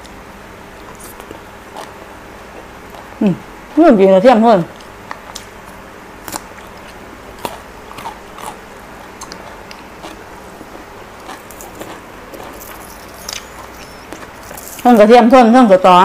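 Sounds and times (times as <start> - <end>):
person chewing garlic crunchily: 0.8 - 3.2, 4.7 - 15.0.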